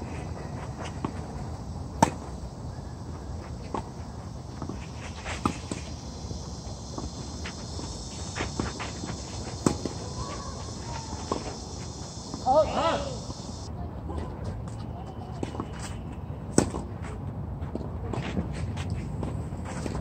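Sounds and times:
footsteps on clay court: 0:00.0 - 0:02.4, 0:06.6 - 0:13.7, 0:16.8 - 0:20.0
rackets hitting tennis ball: 0:02.0 - 0:02.3, 0:08.3 - 0:13.6.

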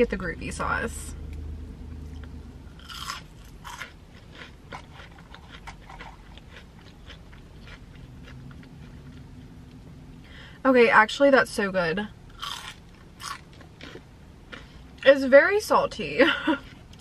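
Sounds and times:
french fries crunching: 0:02.0 - 0:09.3, 0:12.3 - 0:14.7.

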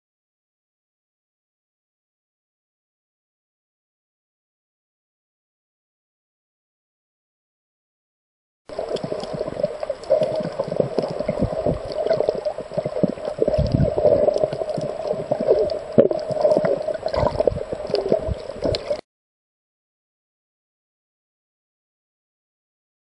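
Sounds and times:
underwater gurgling and crackling: 0:08.7 - 0:19.0.

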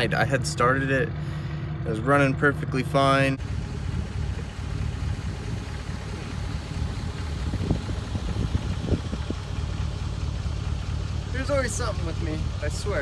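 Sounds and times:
truck engine idling: 0:00.0 - 0:13.0.

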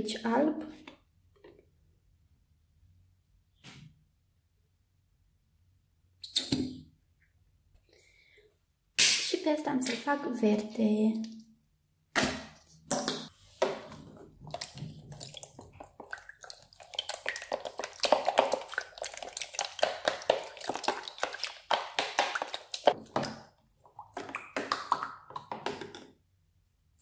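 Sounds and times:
spoon stirring wet glue: 0:13.5 - 0:26.0.

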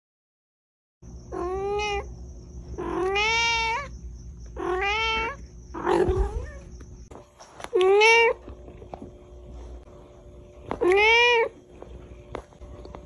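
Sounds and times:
cat meowing: 0:01.3 - 0:02.1, 0:02.8 - 0:03.9, 0:04.6 - 0:06.6, 0:07.7 - 0:08.4, 0:10.8 - 0:11.6.

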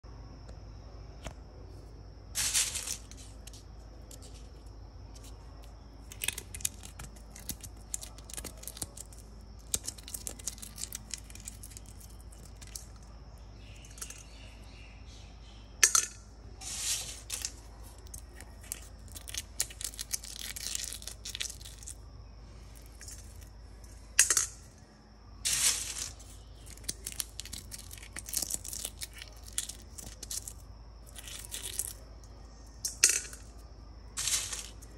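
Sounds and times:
beans clicking against metal: 0:02.3 - 0:14.7, 0:15.8 - 0:34.9
coffee beans crunching by hand: 0:02.4 - 0:14.4, 0:16.6 - 0:23.6, 0:25.4 - 0:33.4, 0:34.2 - 0:34.9.

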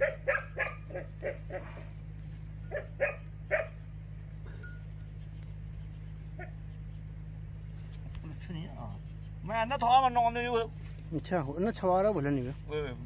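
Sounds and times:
dog barking: 0:00.0 - 0:01.9, 0:02.7 - 0:03.8, 0:06.4 - 0:06.8
steady low hum: 0:00.0 - 0:13.0.

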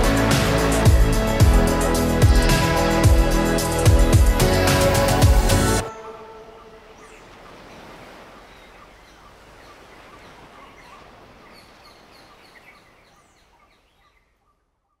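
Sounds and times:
small birds chirping: 0:05.8 - 0:15.0.

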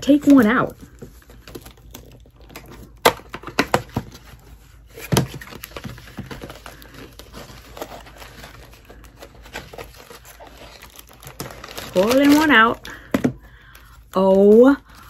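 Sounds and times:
plastic bag crinkling: 0:04.0 - 0:15.0.

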